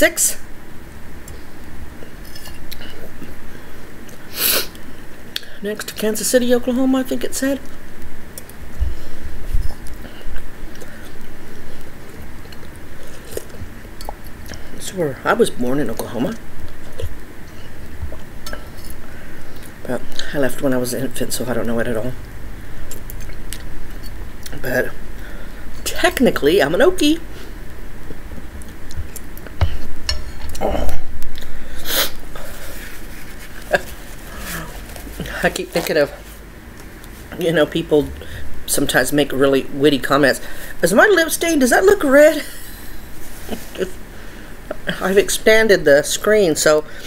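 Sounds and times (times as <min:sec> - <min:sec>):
person chewing: 0:01.2 - 0:03.4, 0:09.4 - 0:14.8, 0:16.6 - 0:19.8, 0:22.8 - 0:24.6, 0:27.5 - 0:37.4
paper towel roll rustling: 0:32.3 - 0:37.4, 0:43.2 - 0:44.0.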